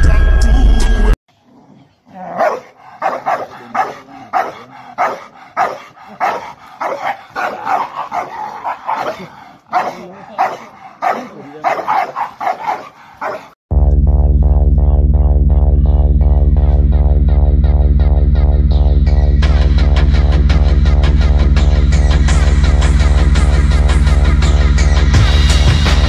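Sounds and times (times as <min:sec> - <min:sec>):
dogs barking aggressively: 0:02.1 - 0:13.6
electronic music: 0:13.7 - 0:26.0.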